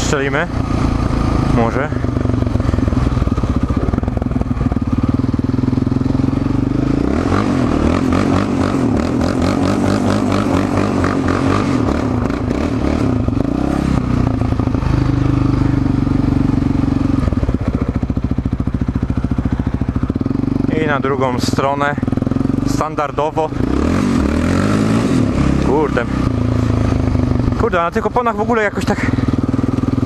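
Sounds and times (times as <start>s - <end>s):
quad engine revving hard: 5.6s - 18.0s, 20.4s - 30.0s.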